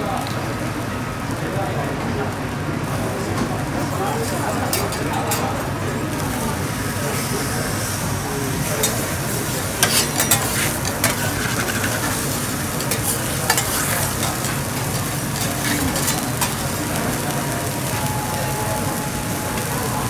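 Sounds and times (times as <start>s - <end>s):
steak sizzling on a griddle: 3.9s - 20.0s
metal utensils clicking on griddle: 4.6s - 5.6s, 8.6s - 17.3s.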